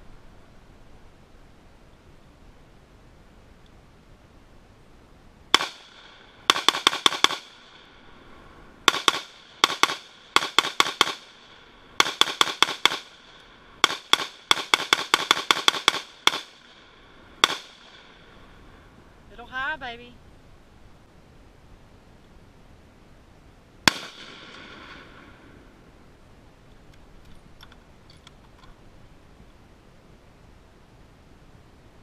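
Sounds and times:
rifle shots: 5.5 - 7.9, 8.8 - 18.4, 23.8 - 25.4.

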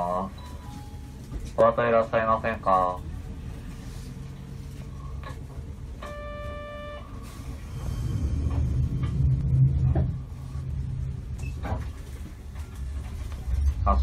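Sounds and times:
tram humming: 0.0 - 14.0
buzzer tone: 6.0 - 7.0
low rumble: 7.0 - 14.0.

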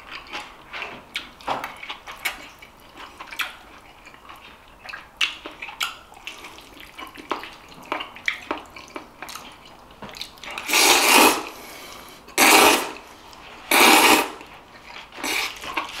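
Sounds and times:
person slurping noodles: 10.6 - 13.1, 13.7 - 14.5, 15.2 - 16.0.

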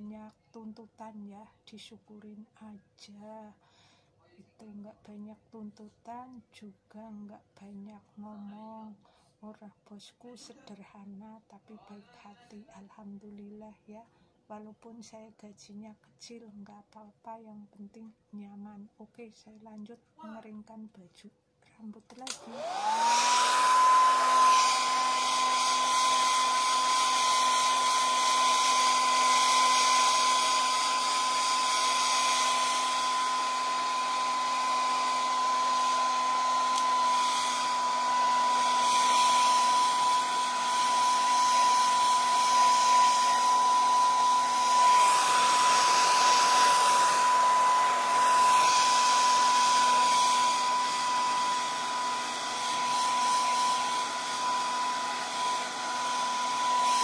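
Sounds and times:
hair dryer running: 22.2 - 57.0.

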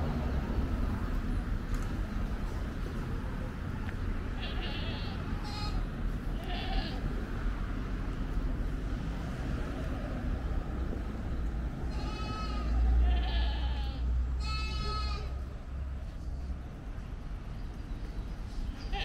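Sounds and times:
livestock bleating: 4.4 - 5.8, 6.4 - 7.0, 11.9 - 15.4.

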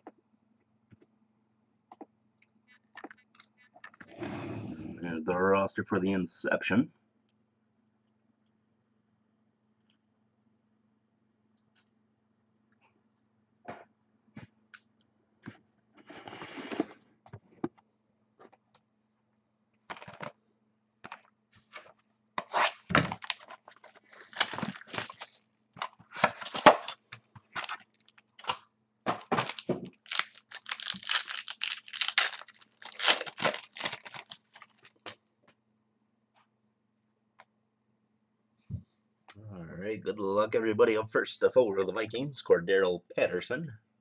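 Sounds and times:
cardboard scraping: 16.0 - 17.0
plastic wrapping crinkling and tearing: 23.1 - 25.5, 26.1 - 28.6, 29.2 - 35.2.

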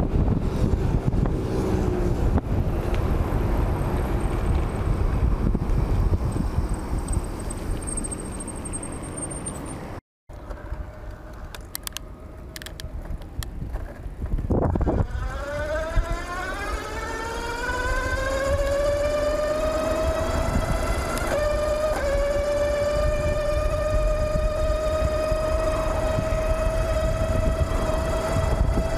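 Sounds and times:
wind rumble on microphone: 0.0 - 8.6, 10.4 - 28.9
electric bike motor whining: 14.5 - 28.9.

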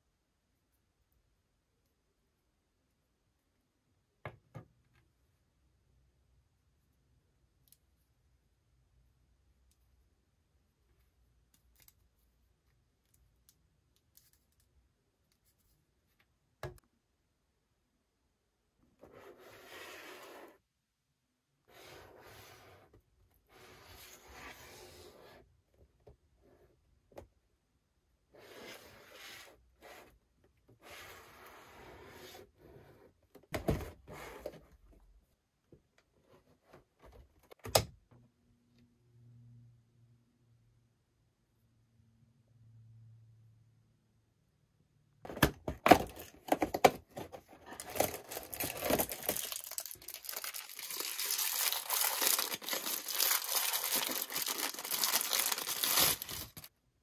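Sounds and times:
cardboard rubbing and sliding: 19.0 - 20.6.

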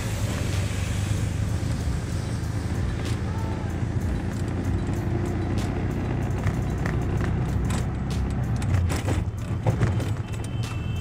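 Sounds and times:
auto-rickshaw engine running: 0.0 - 11.0
vehicle body rattling: 4.0 - 10.7.

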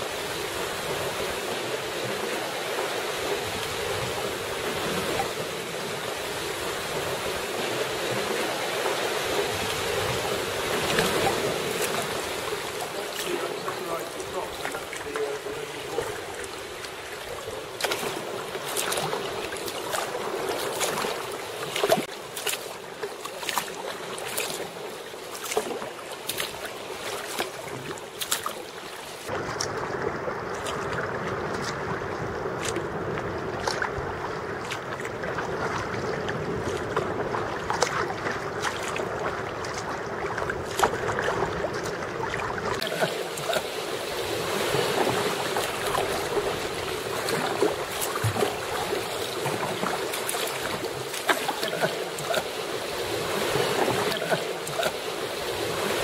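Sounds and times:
kayak paddle strokes: 0.0 - 29.8, 30.5 - 56.0
small waves lapping on hull: 0.0 - 56.0.

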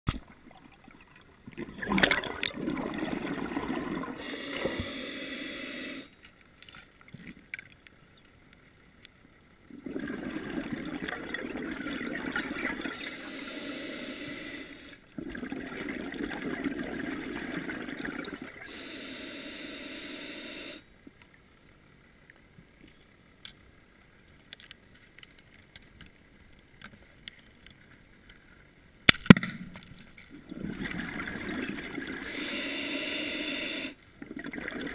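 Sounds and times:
scuba exhaled bubbles rushing underwater: 0.2 - 4.8, 9.7 - 13.2, 15.2 - 18.7, 30.4 - 32.4, 34.2 - 34.9.

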